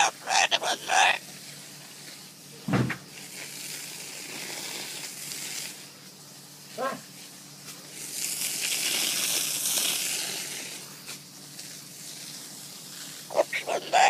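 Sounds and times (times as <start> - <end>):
water spraying from hose: 3.0 - 14.0.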